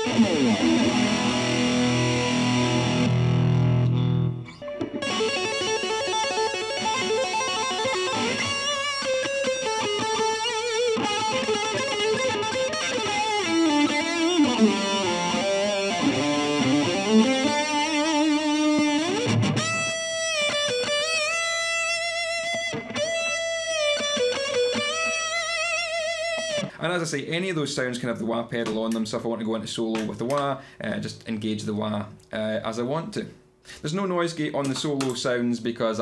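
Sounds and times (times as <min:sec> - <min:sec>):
electric guitar solo: 0:00.0 - 0:26.7.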